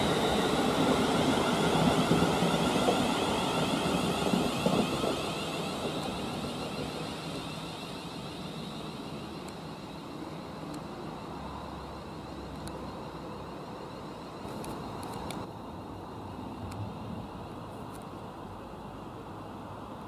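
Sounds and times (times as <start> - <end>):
electric train rumble: 0.0 - 18.7
faint high whine: 0.0 - 19.4.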